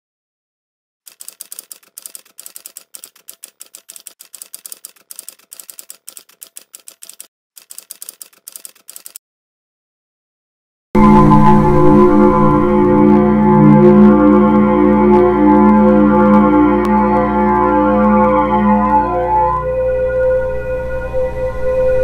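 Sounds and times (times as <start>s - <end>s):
rapid keyboard key clicks: 1.1s - 9.2s.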